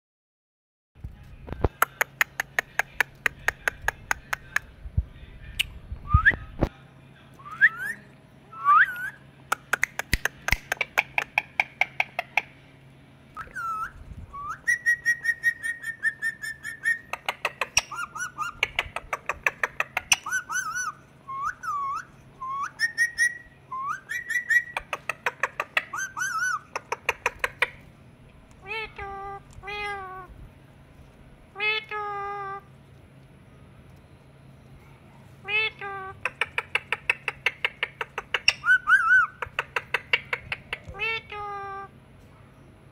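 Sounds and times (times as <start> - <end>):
parakeet clicks: 1.6 - 4.7, 9.5 - 12.5, 36.2 - 38.7
parakeet whistling: 7.4 - 8.0, 13.4 - 27.6, 36.3 - 40.6.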